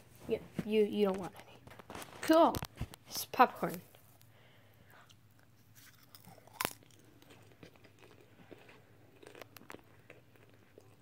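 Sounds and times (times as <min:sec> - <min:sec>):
popcorn crunching: 0:01.0 - 0:04.3, 0:05.0 - 0:11.0.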